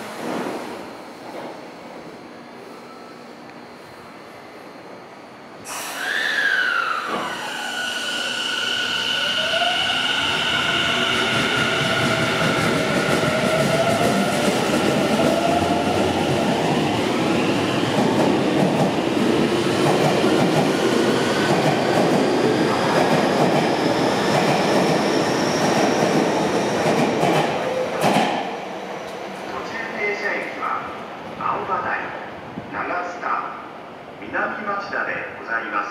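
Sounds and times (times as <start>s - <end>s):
train wheels rumbling on rails: 9.4s - 30.6s.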